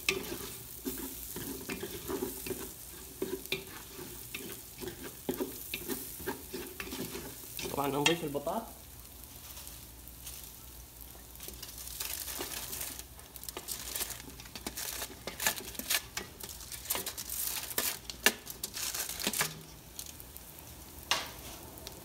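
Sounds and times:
aluminium foil crinkling: 0:00.0 - 0:22.0
onions sizzling: 0:00.0 - 0:22.0
potato slices pattering into pot: 0:11.2 - 0:20.4.

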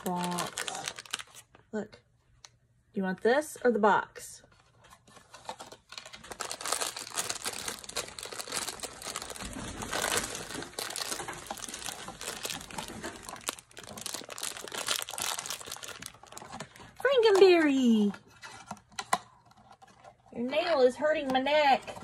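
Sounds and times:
foil bag crinkling: 0:00.0 - 0:01.6, 0:05.2 - 0:18.1.

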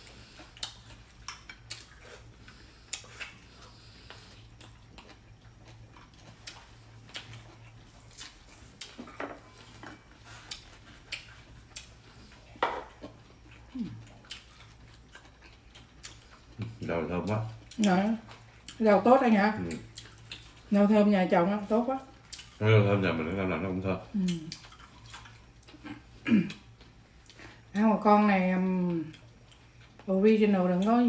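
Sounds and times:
low steady hum: 0:00.0 - 0:31.0.

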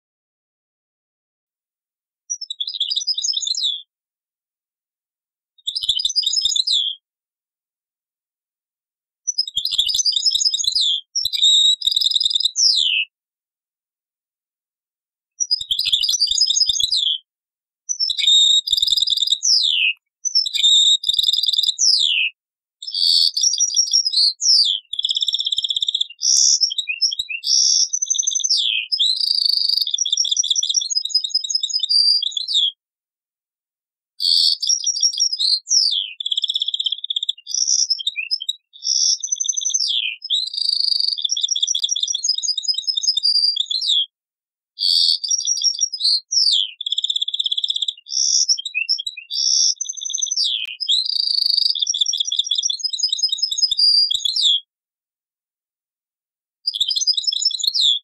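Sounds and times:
goldfinch singing: 0:02.3 - 0:03.9, 0:15.4 - 0:17.2, 0:44.9 - 0:54.6.

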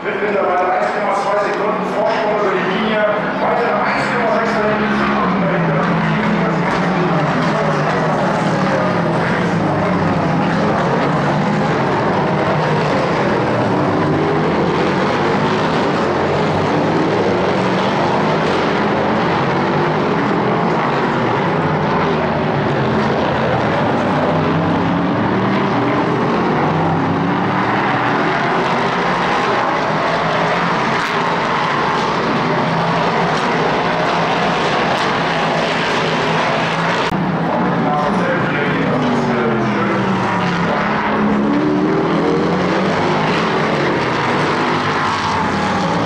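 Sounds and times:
race car engines passing: 0:00.0 - 0:46.0.

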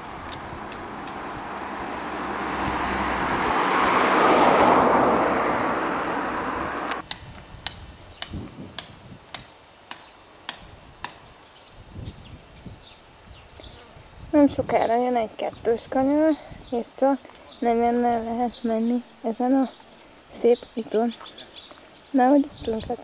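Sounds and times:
car passing: 0:00.0 - 0:07.0.

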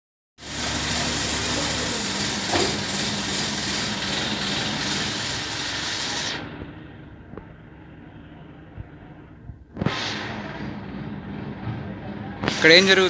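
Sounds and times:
loud even hiss: 0:00.4 - 0:06.8, 0:09.7 - 0:11.1, 0:12.4 - 0:13.0
heavy machinery engine running: 0:00.4 - 0:13.0.

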